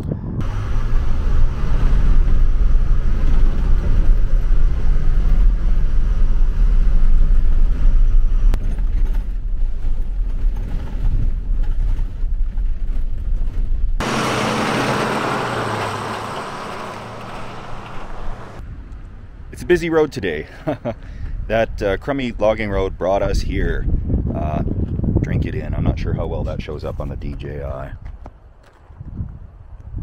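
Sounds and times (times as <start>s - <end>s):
low hum: 0.0s - 19.4s
bus engine and road rumble: 0.0s - 19.5s.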